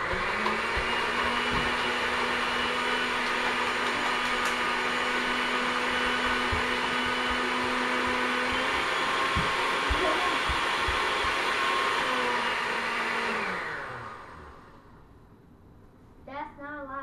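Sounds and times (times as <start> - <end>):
blender motor running: 0.0 - 14.9.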